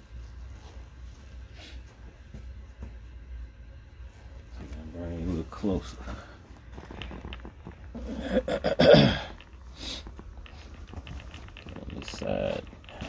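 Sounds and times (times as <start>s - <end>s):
man sneezing: 8.2s - 9.3s.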